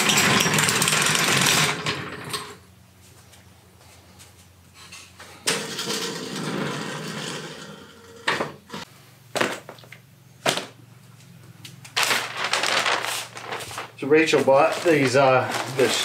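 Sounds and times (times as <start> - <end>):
scraping and rustling: 11.9 - 16.0
paper crinkling: 12.0 - 16.0
parts clattering in box: 12.0 - 16.0.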